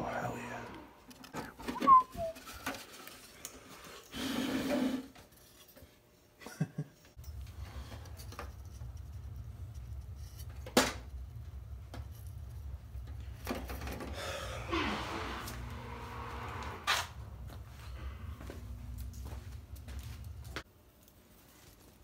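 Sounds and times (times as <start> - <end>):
steady low hum: 0.0 - 1.7, 7.2 - 21.2
rustling handling noise: 17.4 - 22.0.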